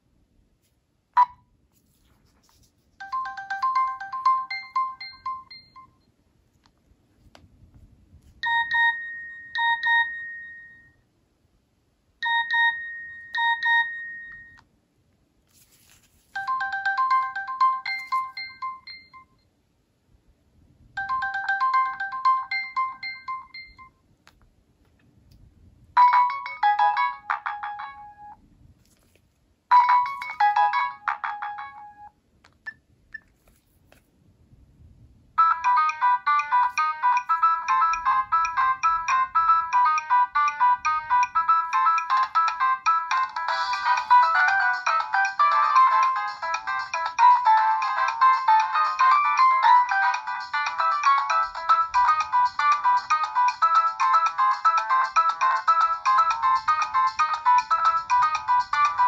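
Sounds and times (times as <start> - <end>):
phone ringtone beeps: 3.0 - 6.0, 8.4 - 11.0, 12.2 - 14.6, 16.4 - 19.4, 21.0 - 24.0, 26.0 - 28.4, 29.7 - 32.2, 35.4 - 59.0
phone ringtone melodies: 3.0 - 6.0, 8.4 - 11.0, 12.2 - 14.6, 16.3 - 19.4, 21.0 - 24.0, 26.0 - 28.4, 29.7 - 32.2, 35.4 - 59.0.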